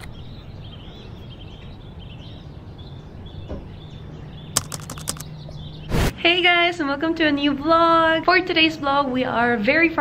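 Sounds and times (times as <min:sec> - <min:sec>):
small birds chirping: 0:00.0 - 0:06.0
low outdoor background rumble: 0:00.1 - 0:10.0
sharp clicks: 0:04.6 - 0:05.3.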